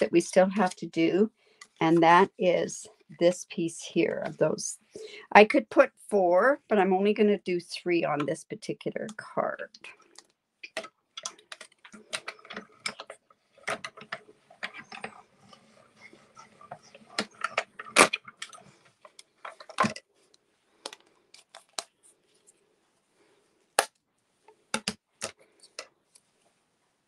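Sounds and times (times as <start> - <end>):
plastic clicks and clacks: 9.8 - 20.1, 24.7 - 25.9.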